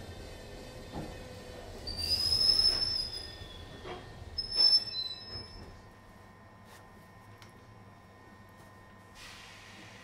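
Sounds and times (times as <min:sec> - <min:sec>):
train wheels squealing: 0:01.8 - 0:05.7.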